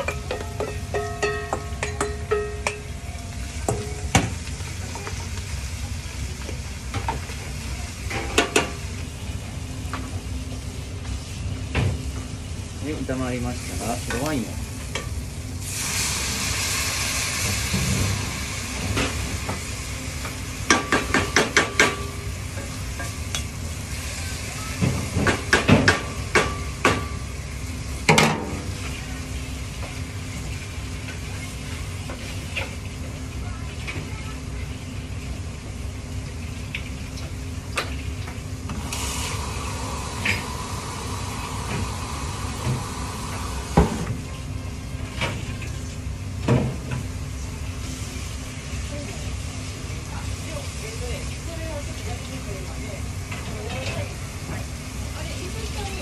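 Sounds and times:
vegetables sizzling in a pan: 0.0 - 56.0.

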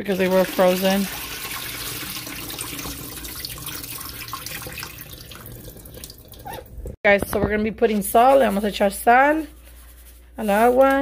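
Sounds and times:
faucet water splashing into sink: 0.0 - 7.0.

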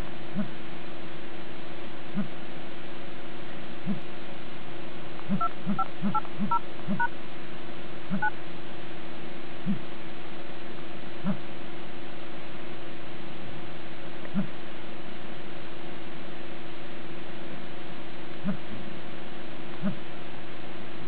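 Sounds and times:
steady low hum: 0.0 - 21.0
keypad beeps: 5.3 - 7.1, 8.1 - 8.3.

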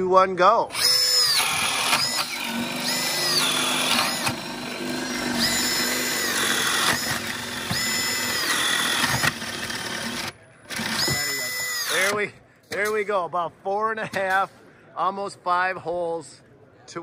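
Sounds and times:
drill bits grinding through wood: 0.7 - 12.2
drill motor whine: 0.7 - 12.2.

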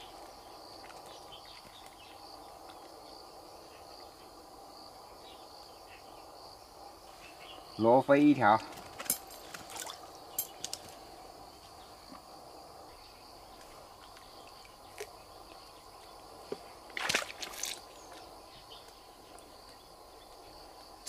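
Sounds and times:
insects chirring: 0.0 - 21.0
small water splashes: 9.4 - 10.8, 16.9 - 18.2.

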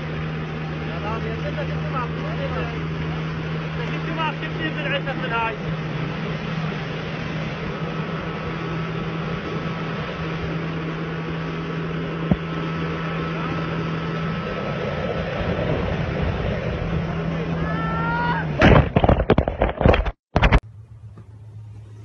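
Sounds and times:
wind and water spray: 0.0 - 19.7
boat motor running: 0.0 - 22.0.

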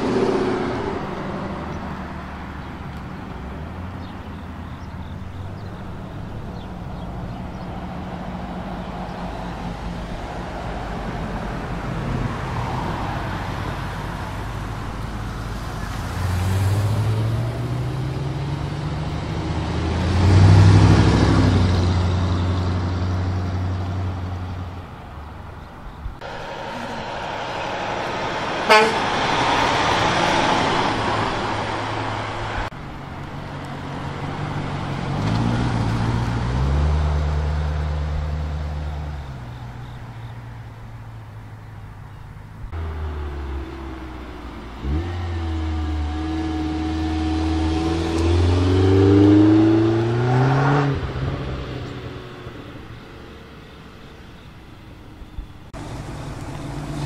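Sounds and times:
cars accelerating past: 0.0 - 24.8, 26.2 - 32.8, 33.4 - 41.2, 42.7 - 54.4
truck diesel engine passing: 0.0 - 57.0.

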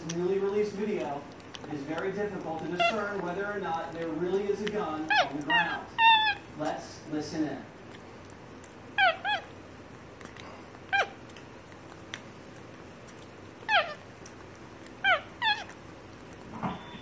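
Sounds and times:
monkey chirping calls: 2.7 - 3.2, 5.0 - 6.5, 9.0 - 9.5, 13.7 - 14.0, 15.0 - 15.7.

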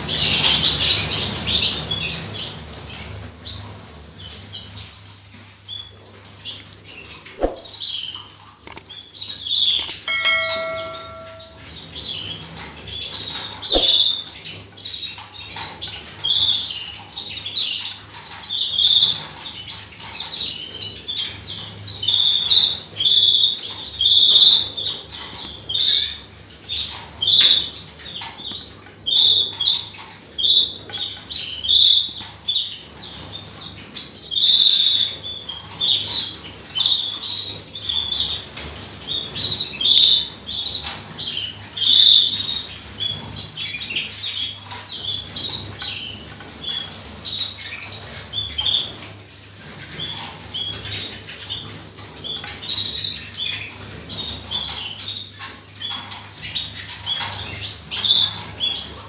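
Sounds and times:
canaries chirping: 28.4 - 28.6, 30.4 - 33.3.

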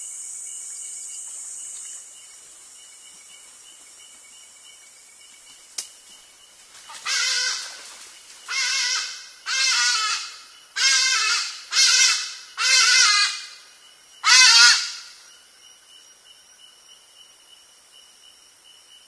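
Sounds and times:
ibis harsh nasal cries: 8.6 - 13.5, 14.2 - 15.0.

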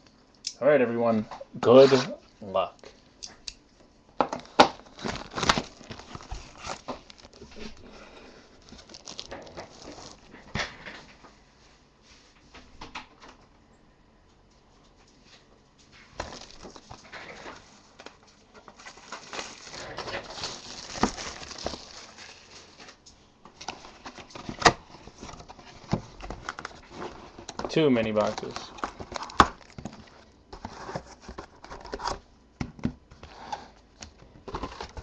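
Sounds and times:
cardboard rustling: 4.4 - 10.9, 16.0 - 32.2, 34.3 - 35.0.

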